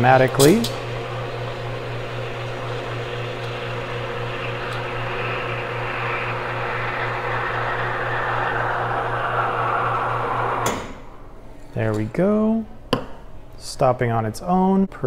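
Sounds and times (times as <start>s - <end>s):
steam wand steaming milk: 0.5s - 11.0s.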